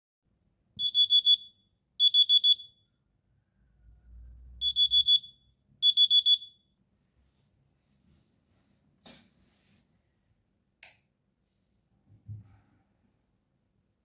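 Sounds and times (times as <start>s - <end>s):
alarm beeping: 0.8s - 2.8s, 4.6s - 6.6s.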